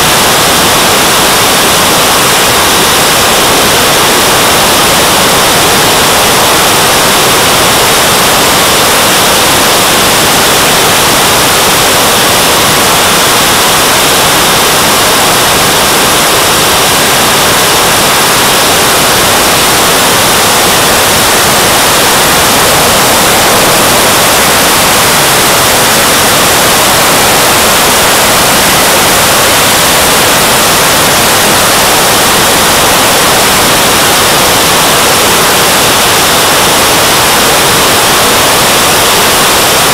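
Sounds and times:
jet turbine engine hiss: 0:00.0 - 0:39.9
rushing air: 0:19.0 - 0:32.1.

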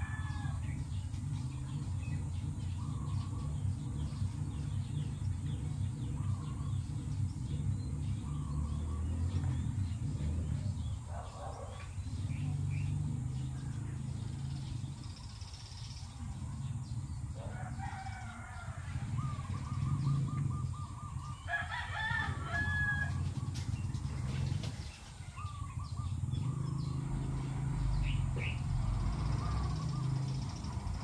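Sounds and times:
rooster crowing: 0:00.0 - 0:00.8, 0:17.4 - 0:20.2, 0:21.1 - 0:23.4
steady low hum: 0:00.0 - 0:31.0
small bird calling: 0:14.5 - 0:23.7, 0:25.2 - 0:31.0.

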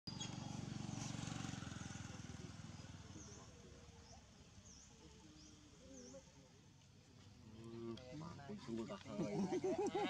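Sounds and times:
small engine running: 0:00.1 - 0:05.5.

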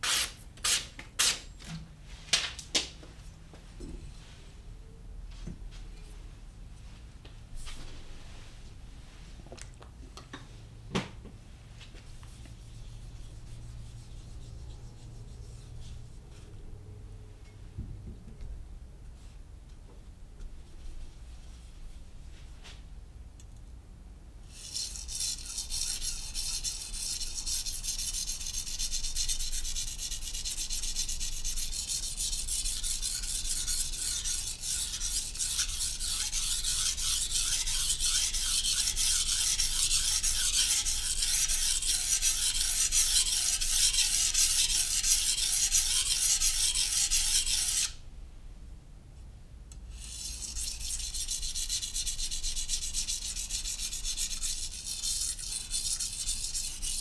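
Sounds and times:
knife sharpening on whetstone: 0:24.6 - 0:47.9, 0:50.0 - 0:57.0.

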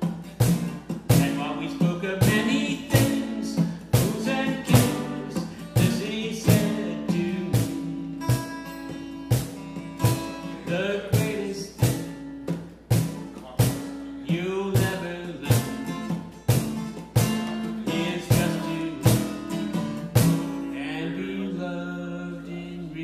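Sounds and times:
acoustic guitar strumming: 0:00.0 - 0:23.0
man singing: 0:01.1 - 0:08.1, 0:10.2 - 0:12.2, 0:13.4 - 0:16.3, 0:17.2 - 0:19.8, 0:20.6 - 0:23.0.

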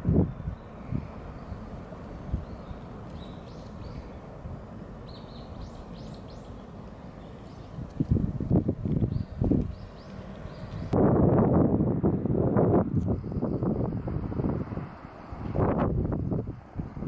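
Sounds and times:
small bird chirping: 0:02.4 - 0:04.2, 0:05.0 - 0:07.8.

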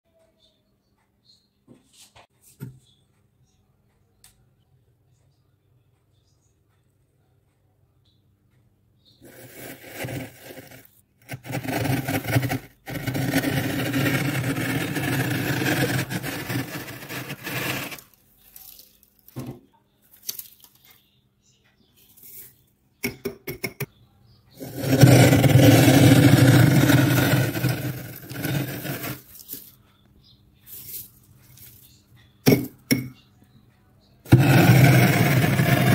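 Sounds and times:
glass rim scraping freezer frost: 0:09.2 - 0:19.0, 0:24.6 - 0:29.6, 0:34.3 - 0:35.9.

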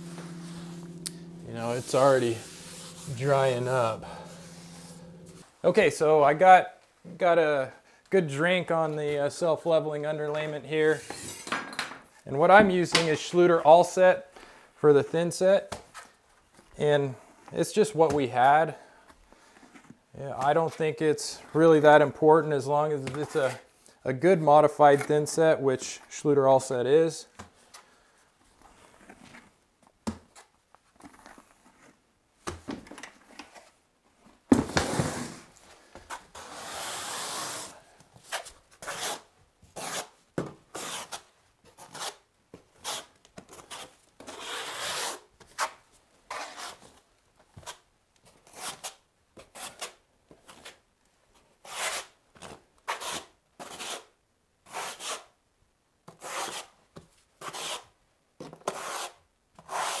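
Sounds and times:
trowel scraping mortar on floor: 0:00.0 - 0:05.4, 0:34.7 - 0:35.5, 0:36.2 - 0:37.8, 0:38.4 - 0:41.2, 0:42.8 - 0:45.2, 0:56.1 - 0:56.8, 0:57.4 - 0:57.9, 0:58.6 - 1:00.0.

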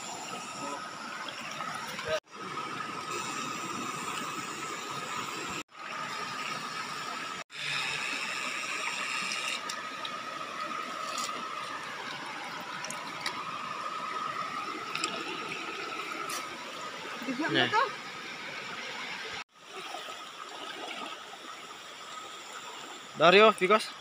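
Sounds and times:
water rushing over rocks: 0:09.0 - 0:22.0.

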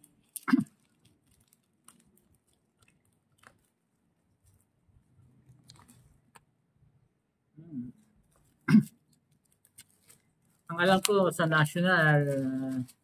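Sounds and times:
fingernails crinkling plastic wrap: 0:00.0 - 0:04.8, 0:05.4 - 0:06.4, 0:08.1 - 0:13.0.

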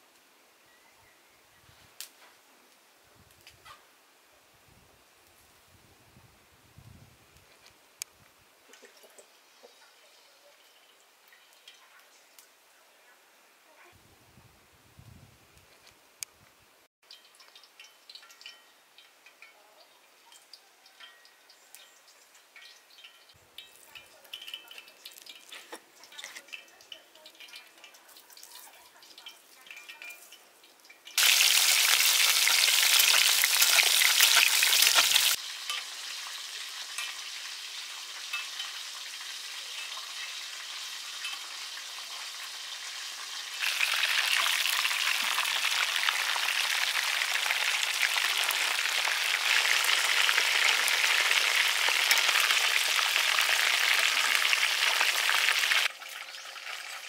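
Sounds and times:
fish sizzling in hot oil: 0:17.1 - 0:19.5, 0:20.4 - 0:57.0.

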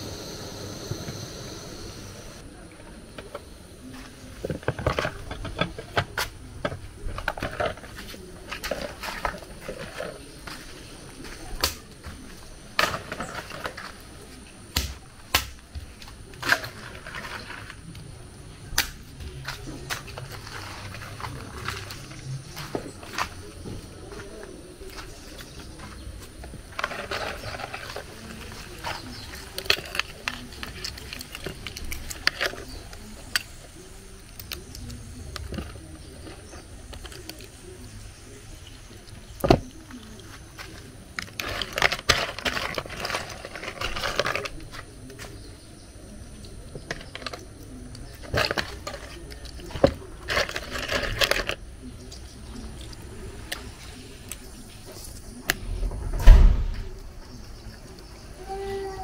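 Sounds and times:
snail shells cracking: 0:24.9 - 0:55.7
sharp knock: 0:55.9 - 0:56.9.

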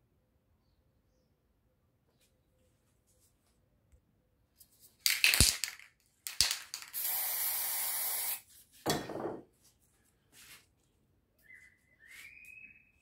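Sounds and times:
spray can hissing: 0:06.4 - 0:08.4.

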